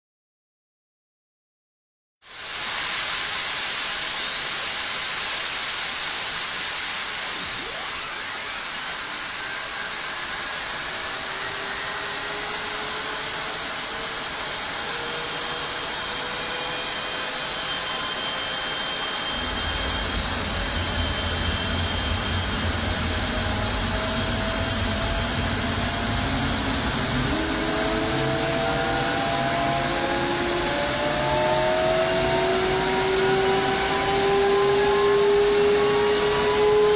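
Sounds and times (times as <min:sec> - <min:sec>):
jet engine whine and hiss: 0:02.3 - 0:36.9
deep rumble: 0:19.3 - 0:31.8.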